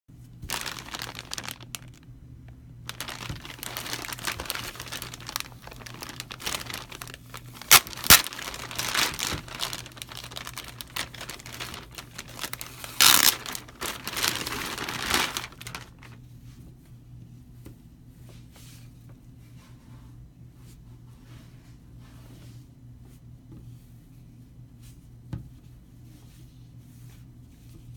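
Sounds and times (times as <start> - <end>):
loud plastic crackles: 0.4 - 2.1, 2.9 - 16.2
plastic bag crinkling: 0.4 - 2.1, 2.9 - 16.2.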